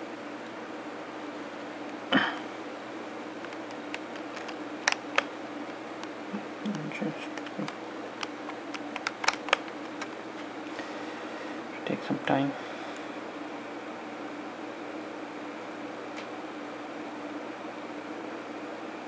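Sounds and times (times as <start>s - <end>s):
faint hum and hiss: 0.0s - 19.0s
handling clicks and taps: 3.4s - 5.8s, 6.6s - 10.2s.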